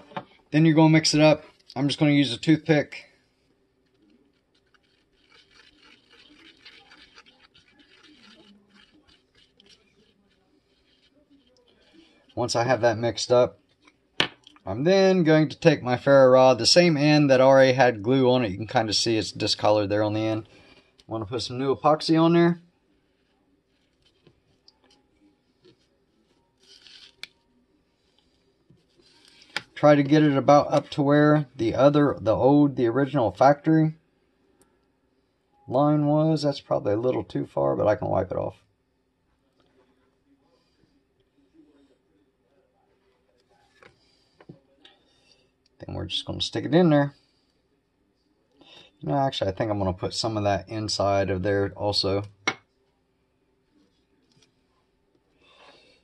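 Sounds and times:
toothpick scratching on cardboard: 0:04.2 - 0:12.3
soft scrape: 0:25.6 - 0:27.3.

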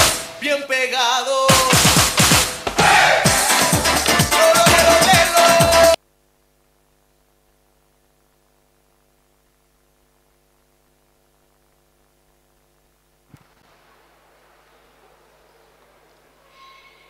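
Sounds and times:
dance music with vocals: 0:00.0 - 0:06.0
faint mains hum: 0:00.0 - 0:17.0.

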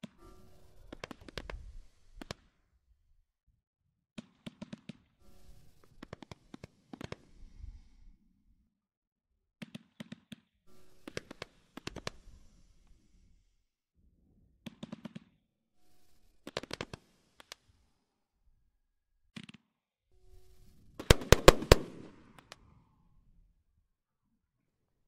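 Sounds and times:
fireworks sharp cracks: 0:00.9 - 0:02.5, 0:04.2 - 0:05.1, 0:11.0 - 0:12.2, 0:16.4 - 0:17.7, 0:21.0 - 0:22.6.

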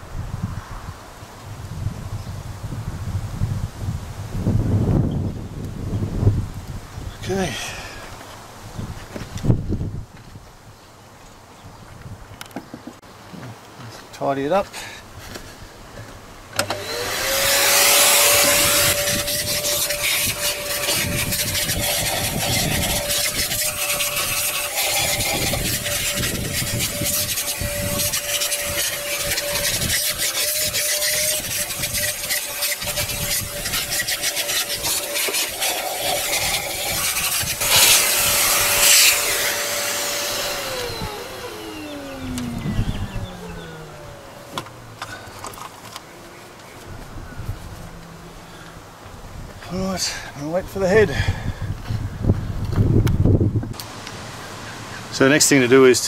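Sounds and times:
vacuum cleaner motor whine: 0:16.6 - 0:33.6, 0:34.2 - 0:44.7.

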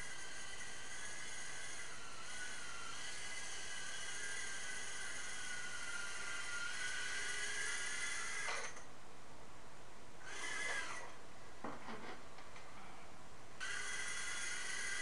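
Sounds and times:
micro drone motors whining: 0:00.0 - 0:08.8, 0:10.2 - 0:11.2, 0:13.6 - 0:15.0.

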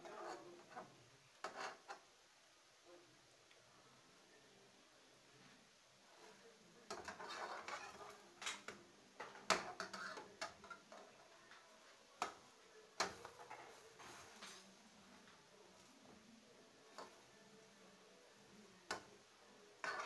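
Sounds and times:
metal spatula scraping frying pan: 0:00.0 - 0:02.0, 0:06.9 - 0:11.0, 0:19.8 - 0:20.0.

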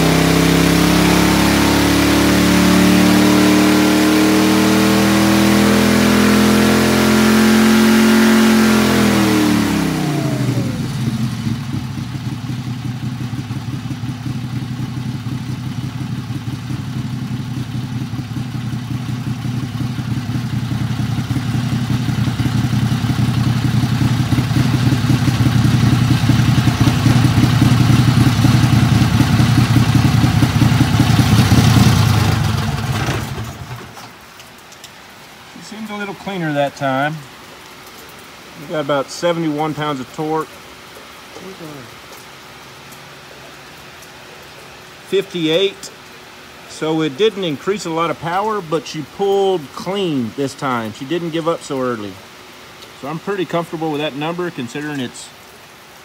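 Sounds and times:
engine revving and idling: 0:00.0 - 0:34.1.

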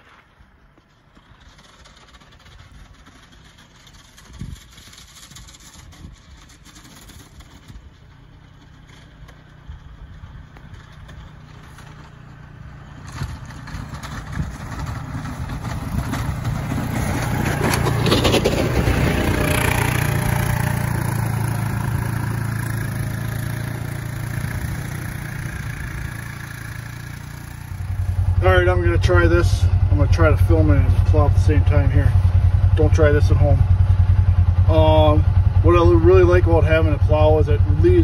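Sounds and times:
utility vehicle engine passing: 0:00.8 - 0:36.8.

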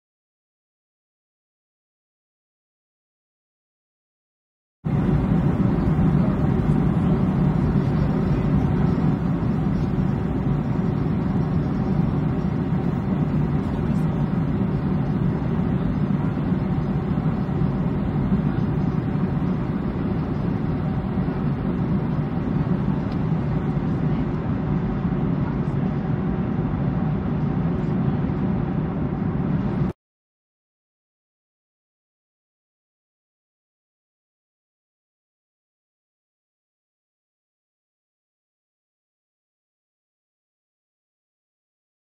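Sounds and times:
airliner cabin roar: 0:04.9 - 0:30.0.

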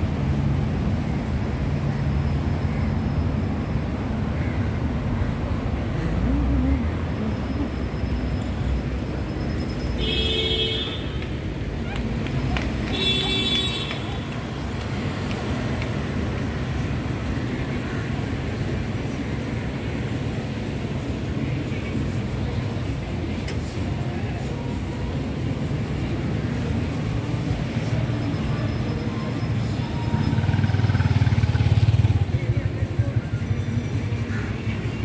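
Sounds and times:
traffic rumble: 0:00.0 - 0:35.0
background voices: 0:05.4 - 0:09.4, 0:14.2 - 0:35.0.

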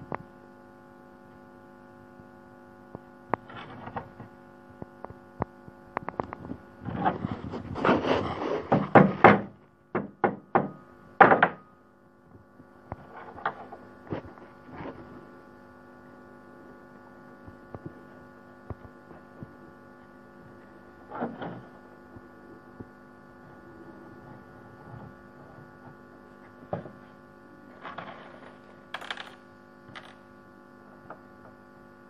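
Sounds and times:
electrical hum: 0:00.0 - 0:32.0
wood knock: 0:08.7 - 0:11.6.

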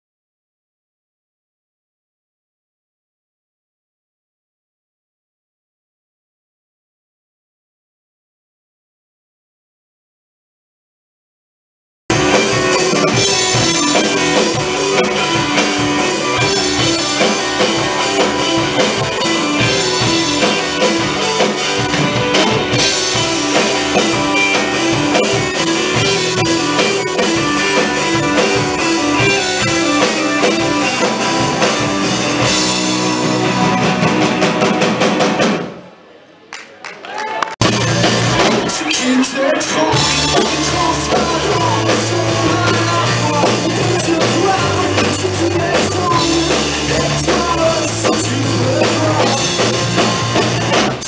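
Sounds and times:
electric guitars: 0:12.1 - 0:35.7, 0:37.6 - 0:51.0
drum kit: 0:12.1 - 0:35.9, 0:37.6 - 0:51.0.

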